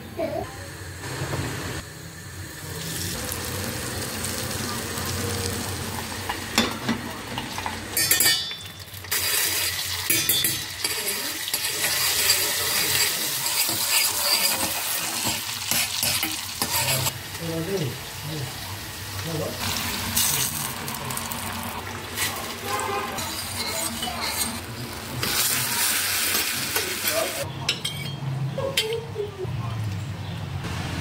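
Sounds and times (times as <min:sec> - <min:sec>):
butter sizzling in pot: 0:00.2 - 0:27.5
spoon clinking on pot: 0:06.3 - 0:09.0, 0:10.1 - 0:13.9.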